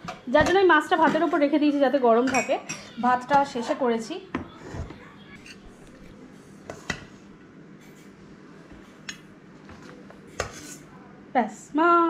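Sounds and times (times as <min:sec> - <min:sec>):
metal spoon clinking on dishes: 0:02.2 - 0:03.0.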